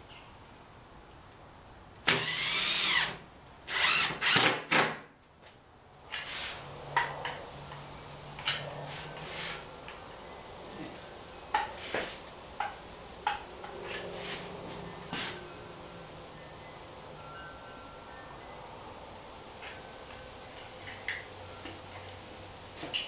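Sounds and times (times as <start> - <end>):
cordless drill driving screws: 2.1 - 4.9.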